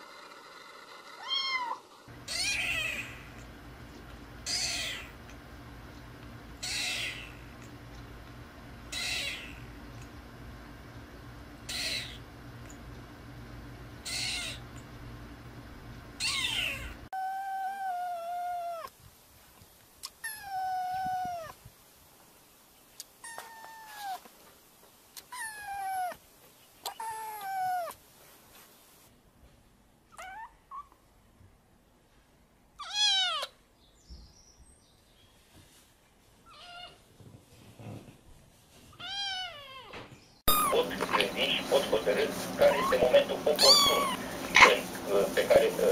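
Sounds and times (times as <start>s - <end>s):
kittens meowing: 1.2s - 3.5s, 4.4s - 5.2s, 6.6s - 7.5s, 8.9s - 9.7s, 11.7s - 12.2s, 14.0s - 14.6s, 16.2s - 18.9s, 20.0s - 21.6s, 23.2s - 24.2s, 26.8s - 28.0s, 32.8s - 33.6s, 39.0s - 41.3s, 42.4s - 45.0s.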